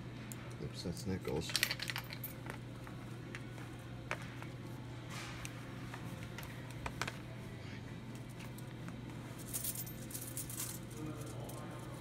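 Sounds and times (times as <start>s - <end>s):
steady low hum: 0.0s - 12.0s
coins jingling in hand: 9.4s - 11.9s.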